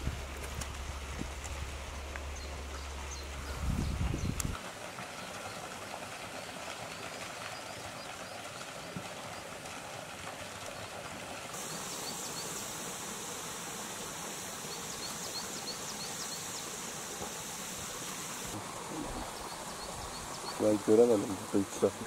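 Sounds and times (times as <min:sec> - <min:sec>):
water stream splashing into lake: 0:00.0 - 0:22.0
bright high hiss: 0:11.6 - 0:20.6.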